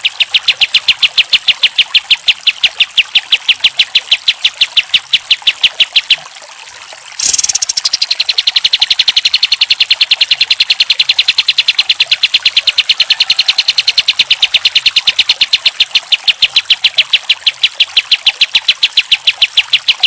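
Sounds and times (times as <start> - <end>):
bird singing sharp high notes: 7.2 - 20.0.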